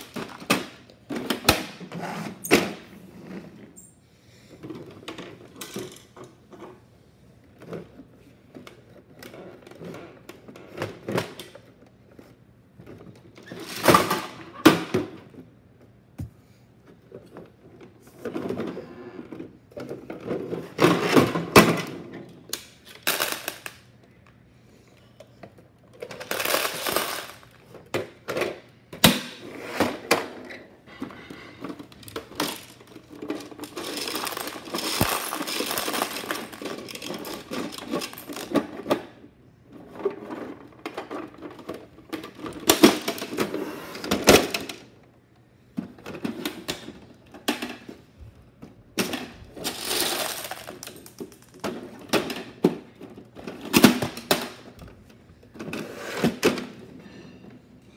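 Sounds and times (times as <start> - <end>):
plastic toy pieces clattering: 22.5 - 23.9, 25.9 - 27.6, 31.6 - 39.2, 49.0 - 54.8.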